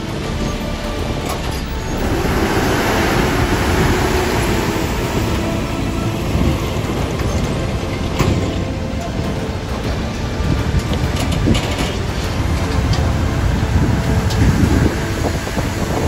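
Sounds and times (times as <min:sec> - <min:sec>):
diesel truck driving past: 0:00.0 - 0:11.2.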